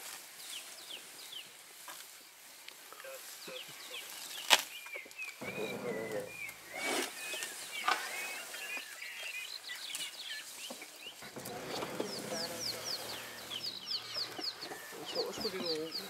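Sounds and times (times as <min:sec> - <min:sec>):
elephant rustling in mud: 0:00.0 - 0:16.0
birds chirping and whistling: 0:03.4 - 0:16.0.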